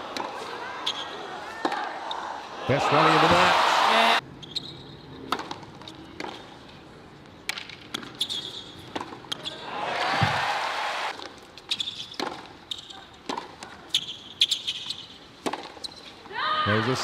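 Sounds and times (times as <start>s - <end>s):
crowd noise: 0.0s - 4.2s, 9.4s - 11.1s
tennis ball bouncing on court: 5.3s - 6.4s, 7.5s - 9.5s, 11.2s - 12.5s, 13.2s - 14.0s, 15.4s - 15.9s.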